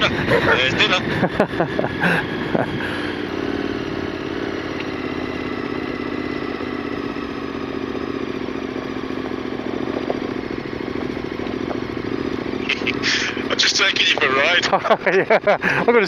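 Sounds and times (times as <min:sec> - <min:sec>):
motorcycle engine at low revs: 0:00.0 - 0:16.0
stones crunching under tyres: 0:04.6 - 0:14.6.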